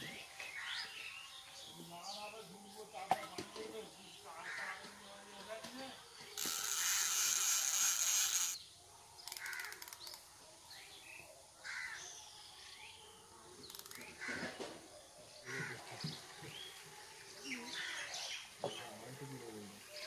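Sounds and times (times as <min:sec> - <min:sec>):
fishing reel ratchet clicking: 0:06.4 - 0:08.6
birds calling: 0:13.7 - 0:20.0.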